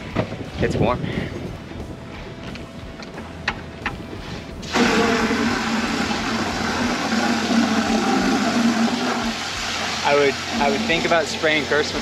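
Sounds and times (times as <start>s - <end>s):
water rushing through hose: 4.6s - 12.0s.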